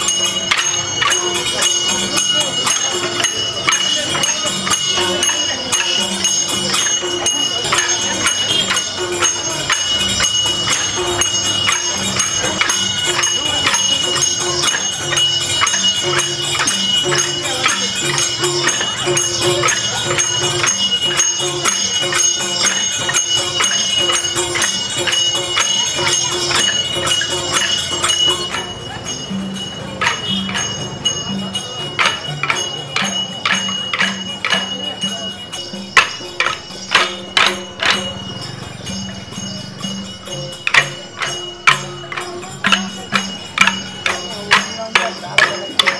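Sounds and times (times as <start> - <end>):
hand cymbals ringing: 0.0 - 45.9
wooden sticks clacking: 36.0 - 38.1, 40.5 - 45.9.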